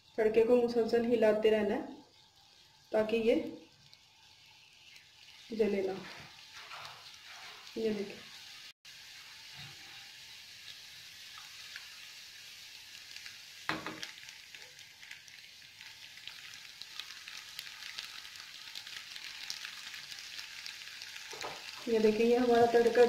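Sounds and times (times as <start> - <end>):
garlic sizzling in oil: 0.0 - 23.0
knock: 13.7 - 14.0.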